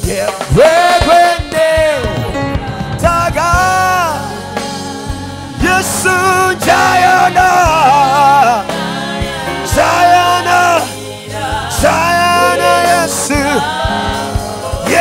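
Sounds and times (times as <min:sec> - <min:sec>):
man singing into microphone: 0:00.0 - 0:04.3, 0:05.6 - 0:08.7, 0:11.8 - 0:13.7, 0:14.7 - 0:15.0
backing singers: 0:00.0 - 0:15.0
band accompaniment: 0:00.0 - 0:15.0.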